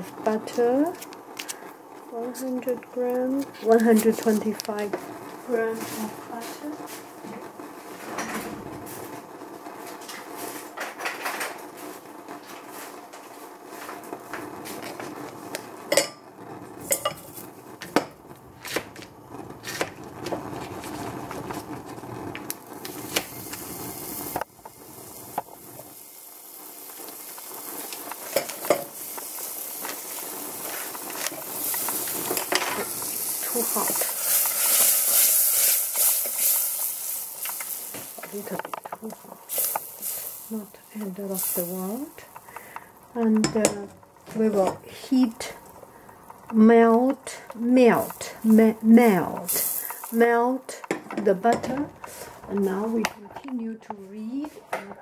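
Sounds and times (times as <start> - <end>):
utensils clinking on saucepan: 16.8 - 17.4, 28.3 - 29.0
hiss: 22.8 - 43.1, 49.5 - 50.2.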